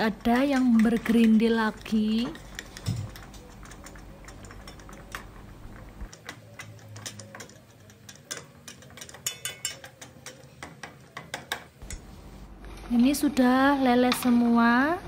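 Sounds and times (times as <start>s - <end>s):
metal spoon scraping pot: 0.0s - 5.5s, 6.1s - 11.6s.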